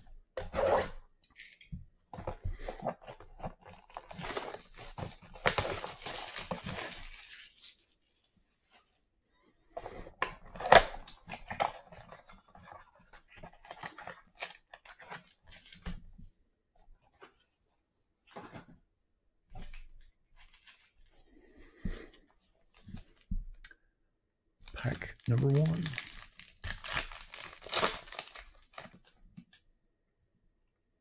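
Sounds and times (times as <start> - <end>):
plastic shrink wrap tearing: 3.6 - 8.0, 24.6 - 29.1.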